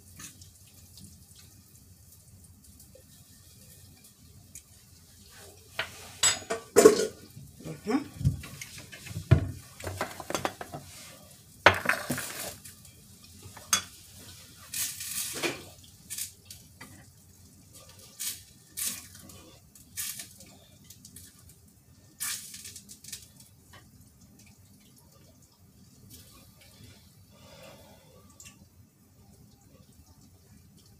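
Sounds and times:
utensil clinking against pots: 0:05.8 - 0:07.2.

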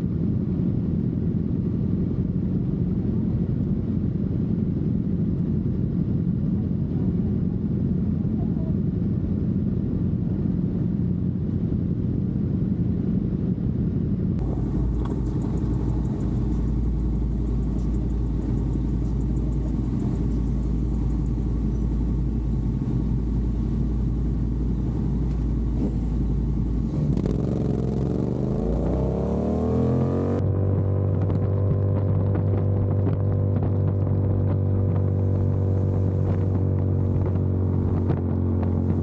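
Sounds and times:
motorcycle engines rumbling: 0:00.0 - 0:39.0
motorcycle engine revving: 0:14.4 - 0:39.0.

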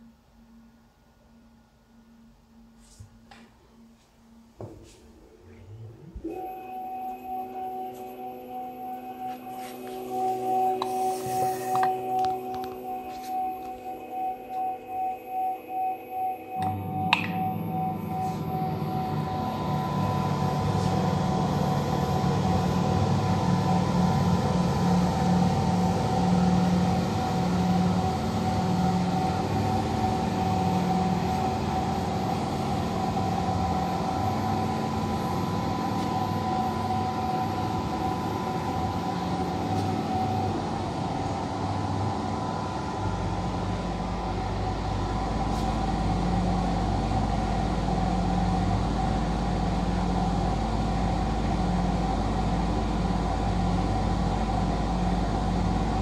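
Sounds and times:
scanner machine hum: 0:03.6 - 0:56.0
whining tones: 0:04.3 - 0:56.0
throbbing low hum: 0:16.6 - 0:56.0.

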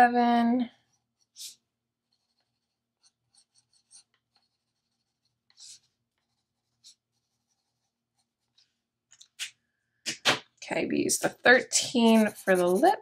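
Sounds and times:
marker scratching on paper: 0:00.8 - 0:08.6, 0:11.0 - 0:13.0.

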